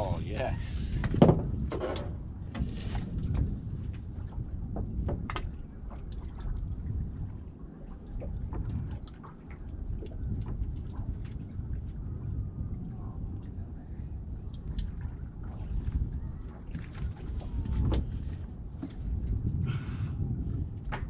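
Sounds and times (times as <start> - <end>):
water lapping against boat hull: 0.0 - 21.0
wind rumbling on microphone: 0.0 - 21.0.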